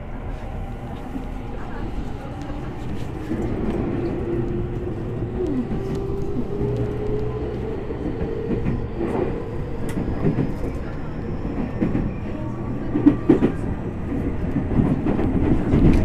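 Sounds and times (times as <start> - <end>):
wheels rumbling on rail: 0.0 - 16.0
rail-joint clicks: 2.1 - 16.0.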